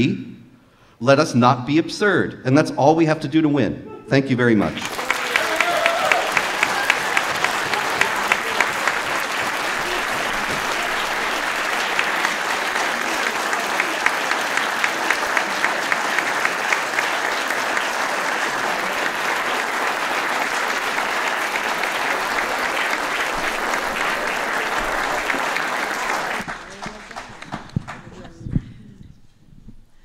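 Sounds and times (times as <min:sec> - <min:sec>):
audience applauding: 0:04.7 - 0:28.5
sharp individual claps: 0:04.8 - 0:28.1.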